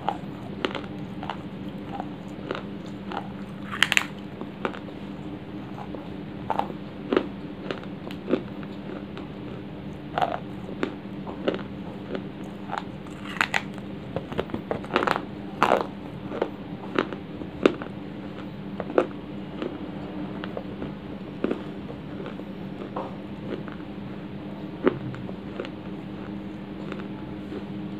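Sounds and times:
dry clay being chewed: 0.0 - 19.8, 20.4 - 23.9, 24.7 - 27.7.

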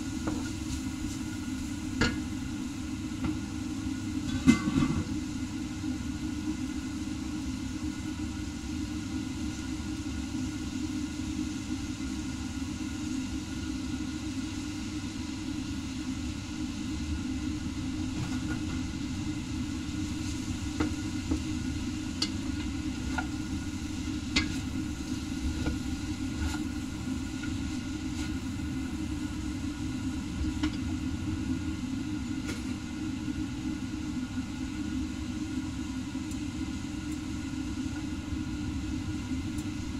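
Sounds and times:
steady low rumble: 22.5 - 33.0.

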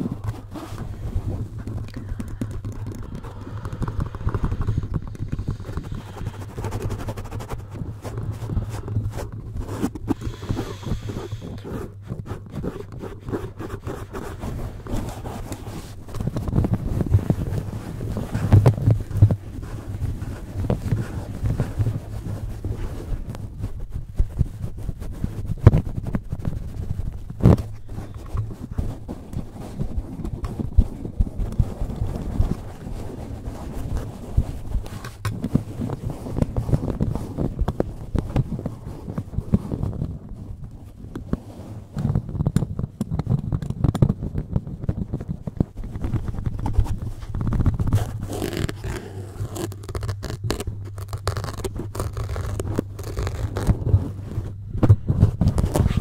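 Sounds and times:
low handling rumble: 0.0 - 23.6
foam scraping microphone grille: 0.0 - 56.0.

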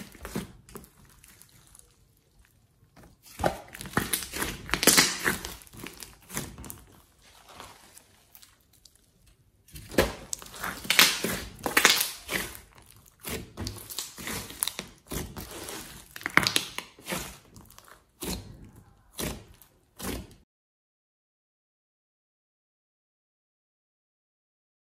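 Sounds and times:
slime squelching and crackling: 0.0 - 20.4.

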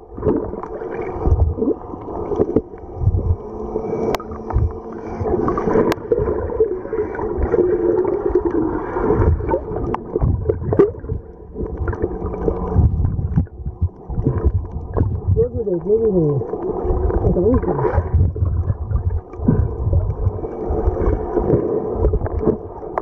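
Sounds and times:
low wavering hum: 0.0 - 23.0
underwater gurgling and sloshing: 0.0 - 23.0
low thumps: 3.0 - 3.4, 4.2 - 5.3, 12.7 - 15.6, 18.0 - 20.4.

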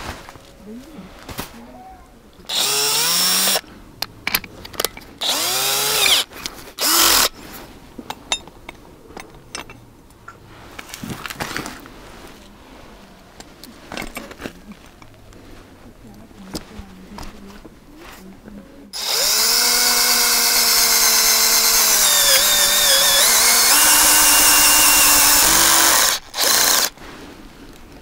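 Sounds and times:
cordless drill motor whining: 2.5 - 3.6, 5.2 - 7.3, 19.0 - 27.0.

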